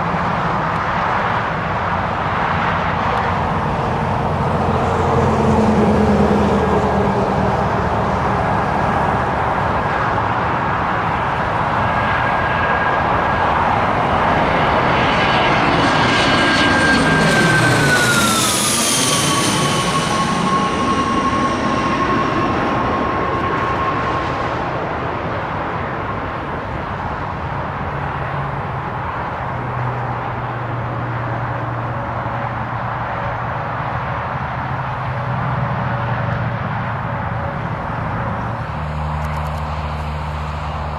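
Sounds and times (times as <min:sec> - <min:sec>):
jet engine rush: 0:00.0 - 0:40.9
jet turbofans whining: 0:00.0 - 0:40.9.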